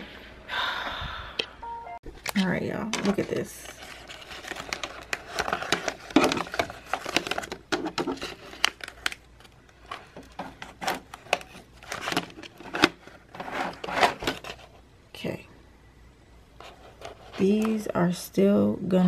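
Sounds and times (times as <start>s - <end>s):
paper crinkling and rustling: 3.0s - 14.8s.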